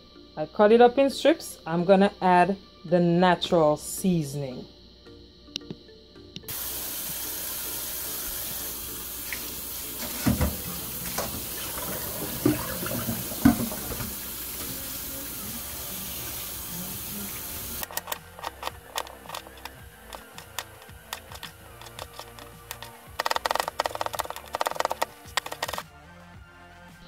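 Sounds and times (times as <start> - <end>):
tap running into a steel sink: 9.3 - 14.9
plate knocking: 12.2 - 14.1.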